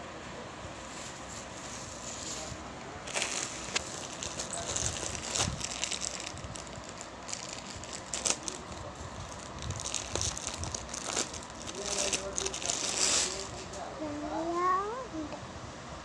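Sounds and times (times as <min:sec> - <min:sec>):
plastic wrapping crinkling: 0:03.0 - 0:13.7.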